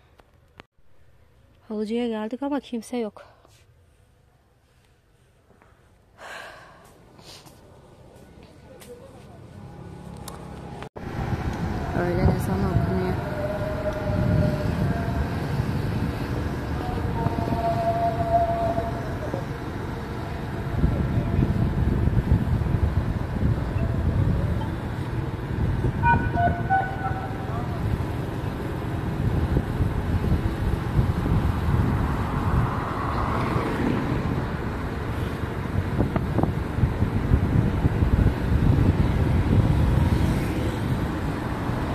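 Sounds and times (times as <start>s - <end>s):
road noise: 0.0s - 41.9s
wind on microphone: 11.0s - 41.9s
call to prayer over loudspeaker: 11.8s - 15.3s.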